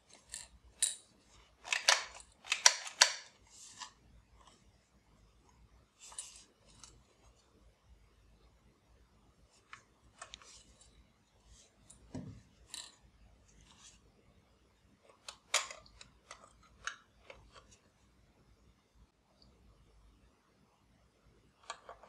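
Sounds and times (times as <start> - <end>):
plastic toy clicks and taps: 1.6 - 3.3.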